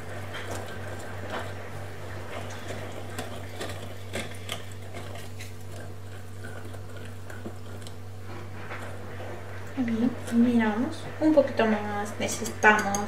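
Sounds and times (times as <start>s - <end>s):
steady low hum: 0.0s - 13.0s
whisk clicking against glass bowl: 12.4s - 13.0s.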